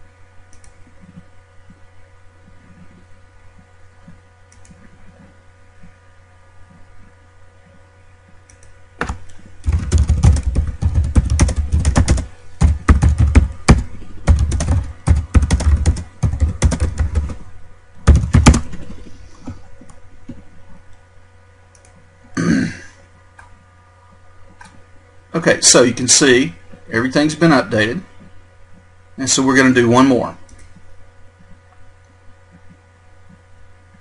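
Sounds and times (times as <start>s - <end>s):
faint steady hum: 0.0s - 34.0s
typing on computer keyboard: 9.6s - 17.4s.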